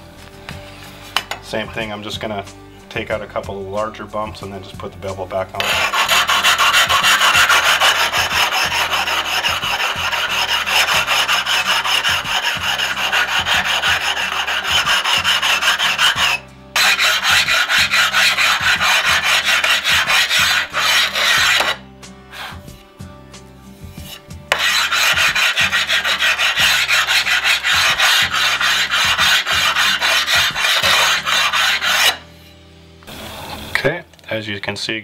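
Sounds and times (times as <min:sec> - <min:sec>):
rubbing stone rasping tile edge: 0:05.6 - 0:22.8, 0:23.8 - 0:32.3.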